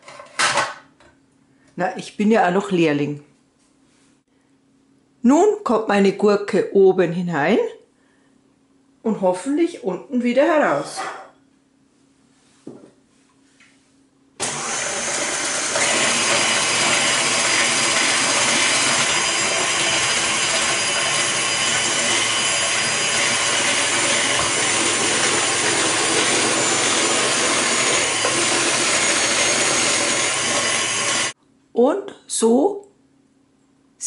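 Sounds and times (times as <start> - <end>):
stand mixer motor running: 14.4 - 31.4.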